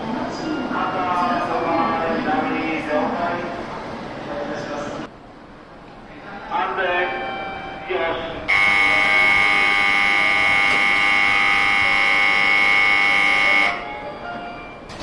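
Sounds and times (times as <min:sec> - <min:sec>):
electronic warning buzzer: 0:08.5 - 0:13.9.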